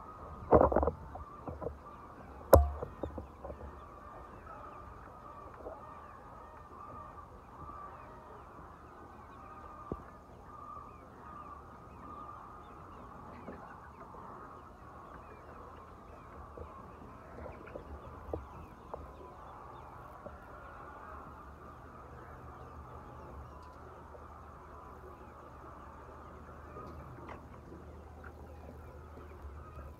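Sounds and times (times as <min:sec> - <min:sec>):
chickens clucking: 0:00.0 - 0:29.9
sharp knocks: 0:02.5 - 0:03.3.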